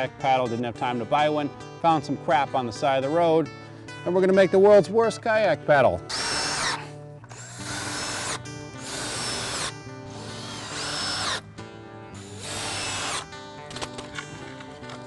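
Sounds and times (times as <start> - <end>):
cordless drill whining into wood: 6.1 - 11.4, 12.1 - 14.3.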